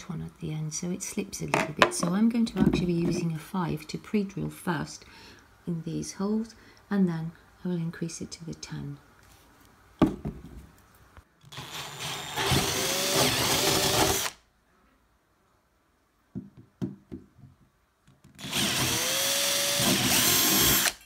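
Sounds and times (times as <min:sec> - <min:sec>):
power drill boring wood: 0:11.5 - 0:14.4, 0:18.4 - 0:21.0.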